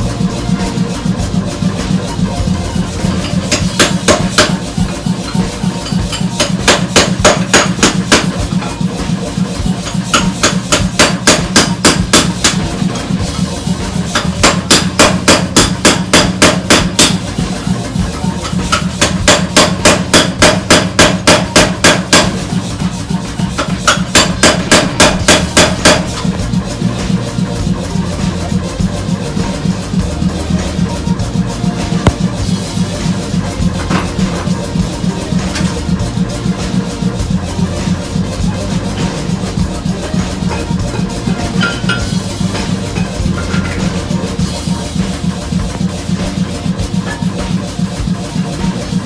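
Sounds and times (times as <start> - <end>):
power hammer striking steel: 3.0 - 9.1, 9.8 - 17.6, 18.4 - 22.6, 23.5 - 27.1, 39.8 - 45.4.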